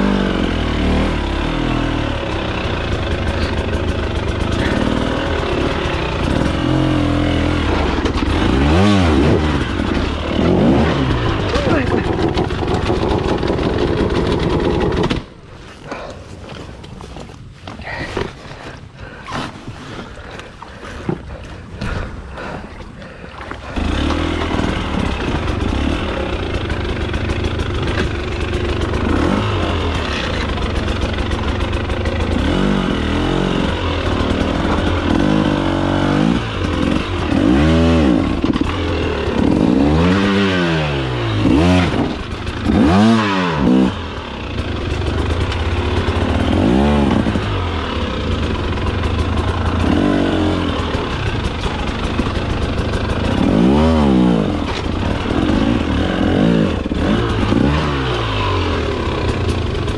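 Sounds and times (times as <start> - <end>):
dirt bike engine revving: 0.0 - 16.1, 23.6 - 59.9
knocks and scrapes: 9.1 - 22.2.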